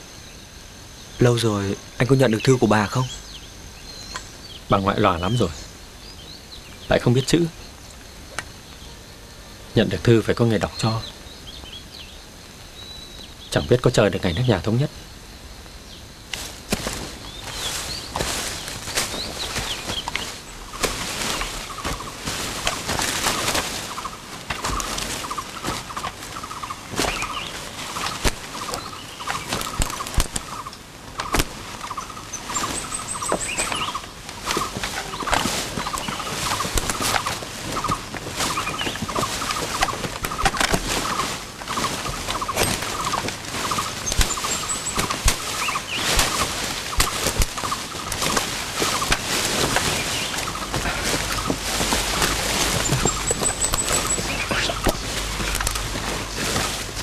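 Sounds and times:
footsteps on dry leaves: 0:16.2 - 0:57.0
high bird chirps: 0:16.9 - 0:56.8.

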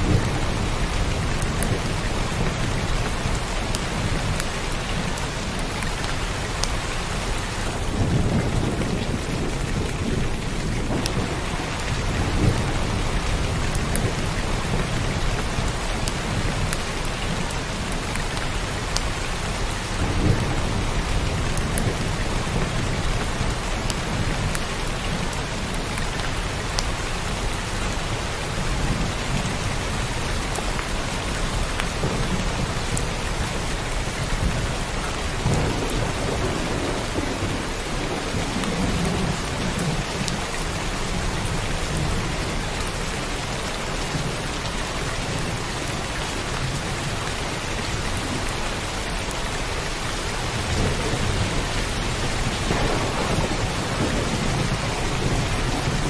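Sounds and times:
heavy rain falling: 0:00.0 - 0:56.0
low thunder rumbling: 0:07.0 - 0:16.7, 0:28.5 - 0:43.3, 0:50.1 - 0:56.0.

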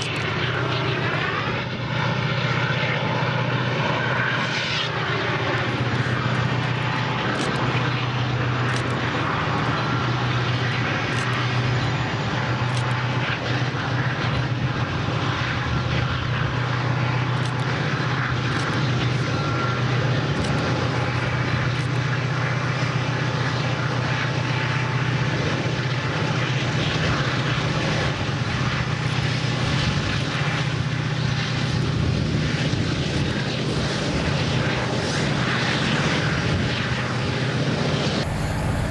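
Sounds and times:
locomotive engine drone: 0:00.0 - 0:38.9
train rumble: 0:38.2 - 0:38.9.

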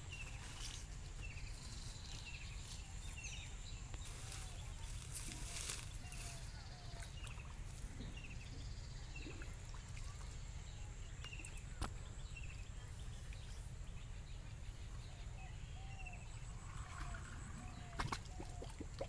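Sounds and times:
small birds chirping: 0:00.0 - 0:19.0
water sloshing from wading: 0:04.0 - 0:13.9, 0:16.4 - 0:19.0.

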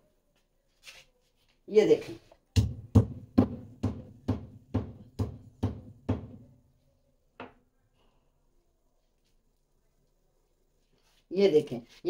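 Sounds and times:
stone pestle pounding in mortar: 0:02.6 - 0:06.4.

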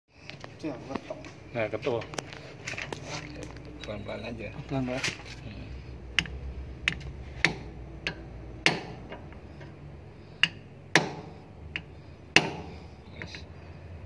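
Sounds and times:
hammer tapping metal: 0:06.1 - 0:09.7, 0:10.4 - 0:13.4.

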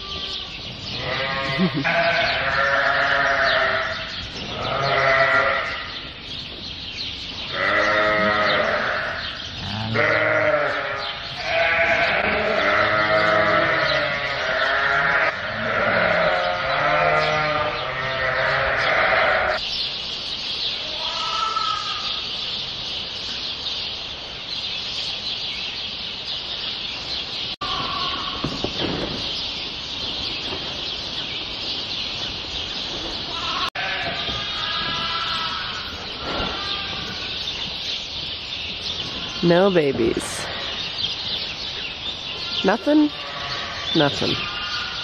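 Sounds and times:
sheep and lambs bleating: 0:00.0 - 0:06.0, 0:07.4 - 0:19.6, 0:20.8 - 0:22.3, 0:27.6 - 0:28.6, 0:33.3 - 0:37.6, 0:39.1 - 0:41.0, 0:42.3 - 0:45.0.

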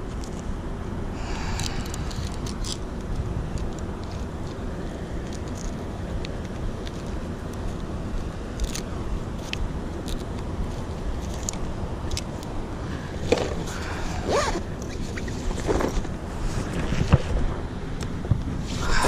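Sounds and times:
wind rumbling on microphone: 0:00.0 - 0:19.0.

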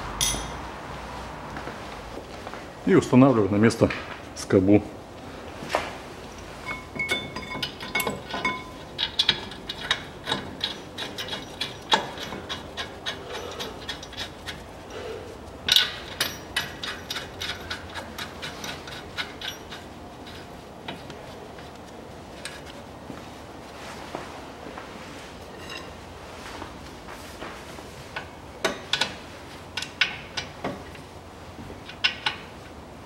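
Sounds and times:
sharp metal knock: 0:00.2 - 0:00.6
metal clicks and clinks: 0:06.6 - 0:14.7, 0:15.7 - 0:20.4.

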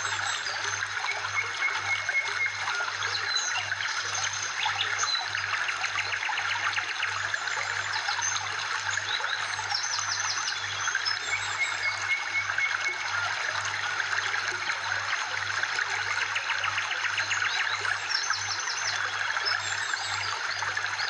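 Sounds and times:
trickling water: 0:00.0 - 0:21.0
birds chirping and whistling: 0:09.1 - 0:13.2.

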